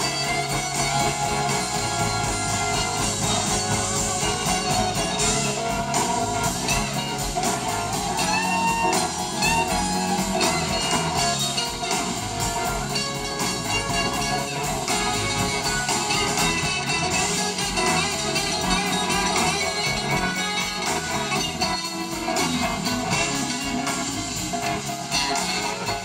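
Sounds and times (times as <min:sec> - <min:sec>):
blues-rock band playing: 0:00.0 - 0:26.0
gliding lead guitar notes: 0:00.0 - 0:26.0.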